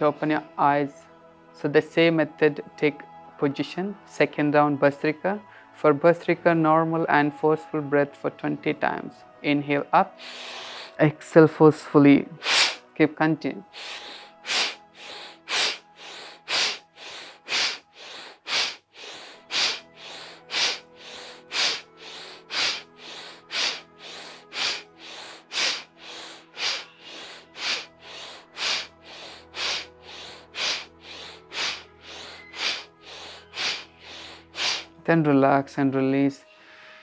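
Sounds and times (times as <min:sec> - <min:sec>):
soft background music: 0:00.0 - 0:37.0
rapid forceful nasal breathing: 0:10.2 - 0:11.0, 0:12.4 - 0:12.9, 0:13.7 - 0:35.0, 0:36.5 - 0:37.0.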